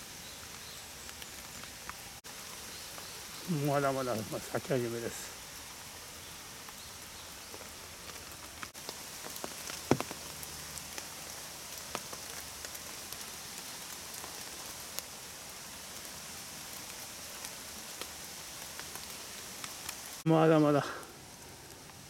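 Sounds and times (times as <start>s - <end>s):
steady rain: 0.0s - 22.0s
raindrops tapping on umbrella: 7.5s - 15.0s.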